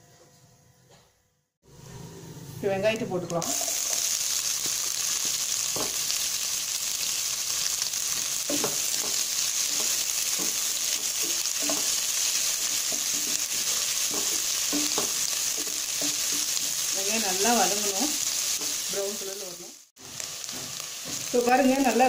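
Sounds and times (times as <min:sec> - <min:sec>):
onions sizzling in hot oil: 0:03.3 - 0:22.0
wooden spatula scraping pan: 0:08.5 - 0:19.0.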